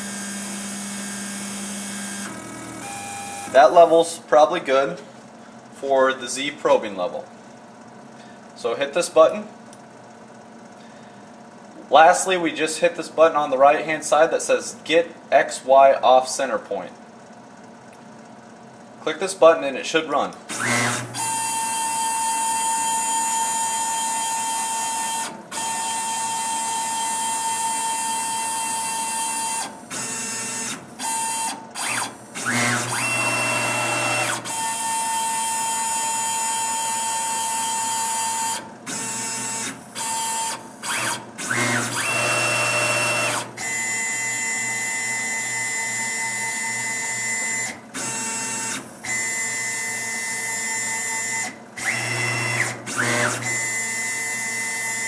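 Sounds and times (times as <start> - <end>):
stepper motors whining: 0.0 - 4.1, 20.5 - 55.0.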